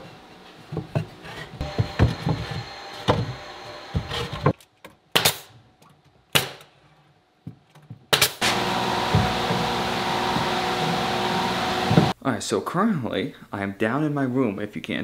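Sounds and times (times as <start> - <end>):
wooden knocks and thumps: 0.7 - 3.4, 7.4 - 8.2.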